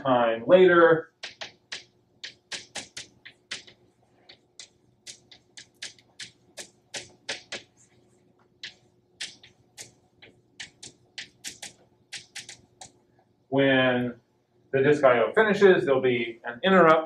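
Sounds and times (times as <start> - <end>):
chalk writing on a blackboard: 2.3 - 4.4.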